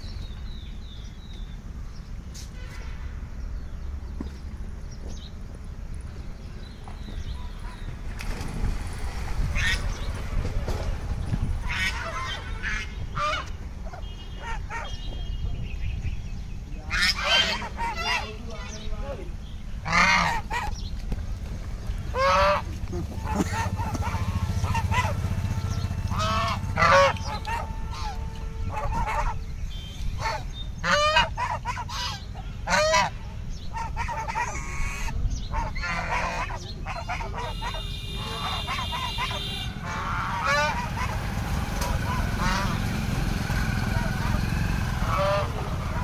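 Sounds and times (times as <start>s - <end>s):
geese honking: 11.6s - 15.0s, 16.9s - 19.0s, 19.8s - 20.8s, 22.1s - 46.0s.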